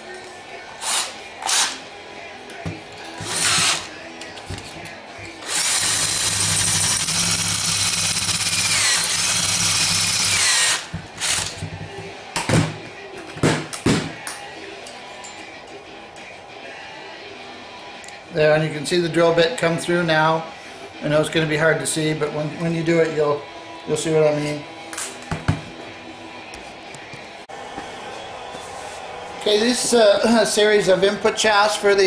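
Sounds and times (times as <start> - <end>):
electric drill boring into metal: 3.2 - 3.9, 5.4 - 11.6.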